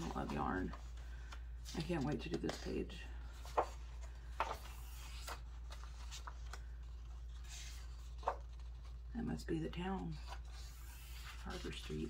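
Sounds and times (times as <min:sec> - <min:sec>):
paper page turning rustle: 0:00.0 - 0:09.1.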